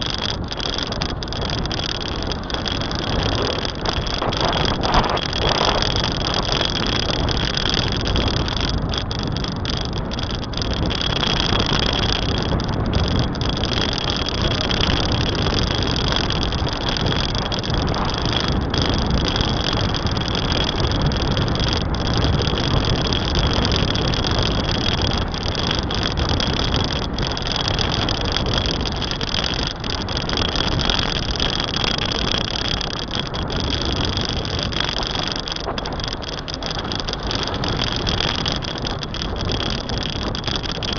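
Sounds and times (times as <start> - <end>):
steady high whine: 0.0 - 23.4
wind and road noise: 0.0 - 40.9.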